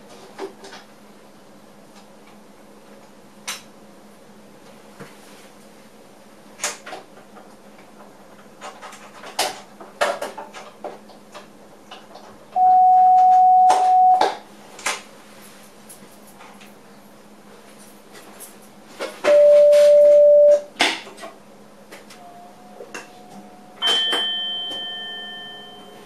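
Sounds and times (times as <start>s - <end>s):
electronic warning beep: 12.6s - 14.2s, 19.3s - 20.7s.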